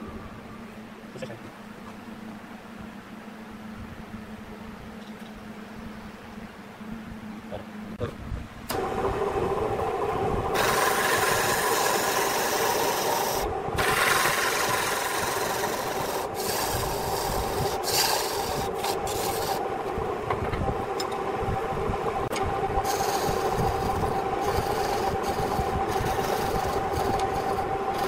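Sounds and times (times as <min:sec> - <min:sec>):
lathe motor humming: 0:08.7 - 0:28.0
chisel scraping spinning wood: 0:10.5 - 0:21.2, 0:22.7 - 0:28.0.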